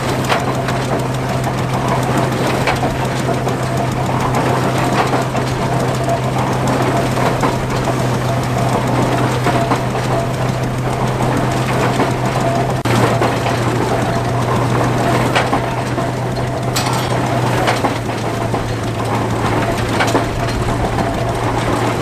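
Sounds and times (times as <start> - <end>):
tractor engine humming: 0.0 - 22.0
baler clattering and knocking: 16.3 - 19.2.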